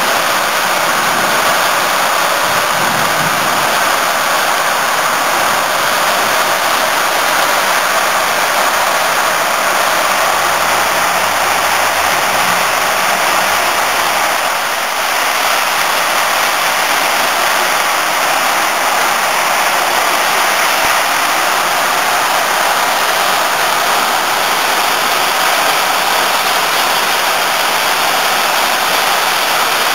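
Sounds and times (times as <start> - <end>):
heavy rain: 0.0 - 29.9.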